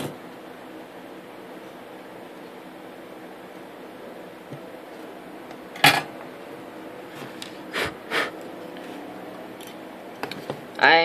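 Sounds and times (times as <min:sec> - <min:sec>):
steady low hum: 0:00.0 - 0:10.9.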